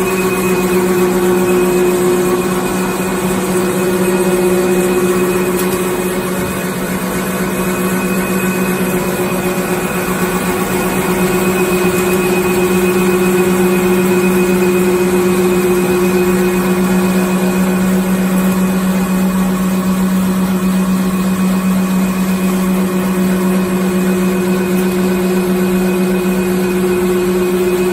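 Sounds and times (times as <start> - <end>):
machine mechanical hum: 0.0 - 27.9.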